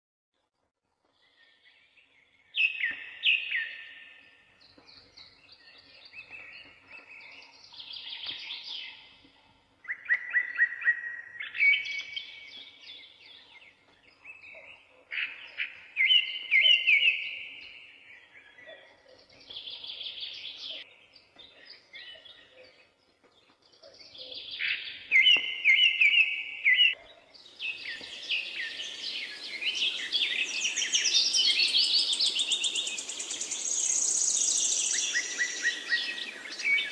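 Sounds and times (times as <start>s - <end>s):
songbirds chirping and trilling: 1.0s - 36.9s
background hiss: 27.6s - 36.9s.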